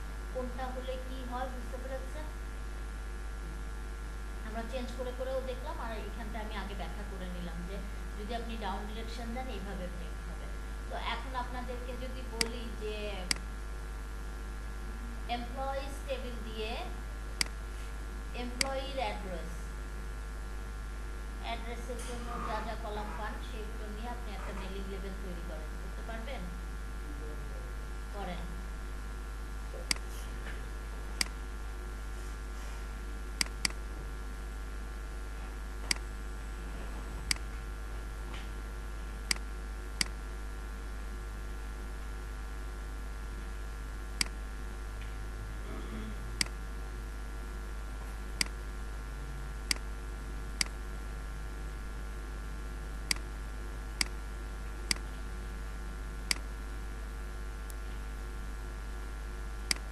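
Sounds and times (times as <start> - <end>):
low mains hum: 0.0 - 59.9
computer mouse clicking: 29.8 - 30.1, 59.7 - 59.9.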